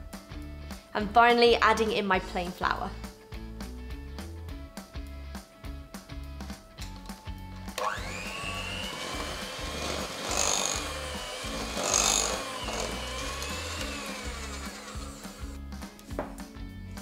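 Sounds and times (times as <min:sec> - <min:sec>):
background music: 0:00.0 - 0:17.0
electric hand mixer whining: 0:07.8 - 0:15.6.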